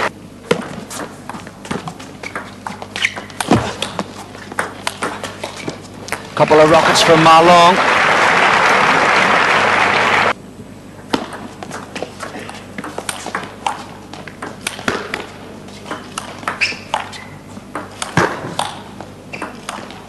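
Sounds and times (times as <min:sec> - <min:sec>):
crowd applause: 0:06.5 - 0:10.4.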